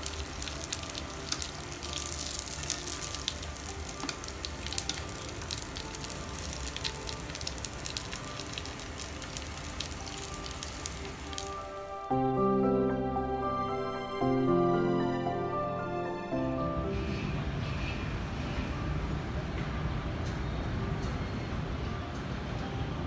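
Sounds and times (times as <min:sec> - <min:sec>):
food frying in hot oil: 0:00.0 - 0:12.0
loud music: 0:11.7 - 0:17.2.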